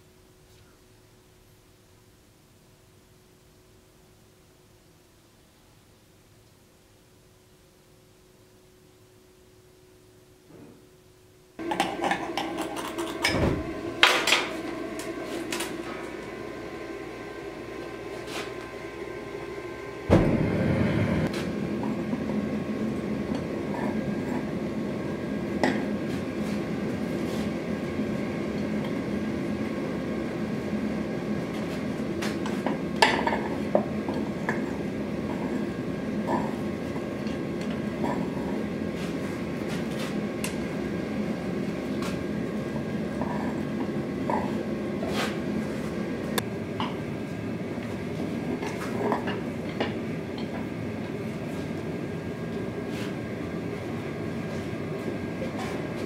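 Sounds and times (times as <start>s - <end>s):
gas forge burner roaring: 11.6s - 56.0s.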